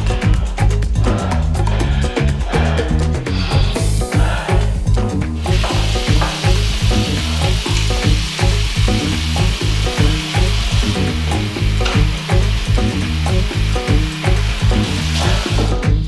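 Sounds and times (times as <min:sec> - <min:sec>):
background music with bass beat: 0:00.0 - 0:16.0
tap water running into sink: 0:05.4 - 0:16.0.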